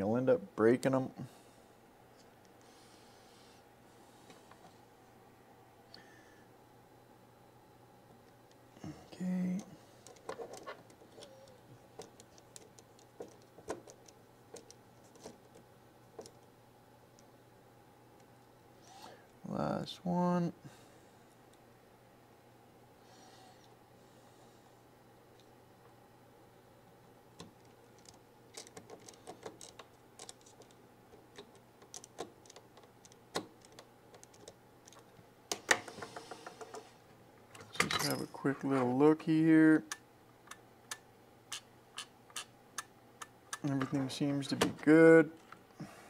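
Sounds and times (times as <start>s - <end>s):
small plastic parts clicking: 27.4s - 36.8s.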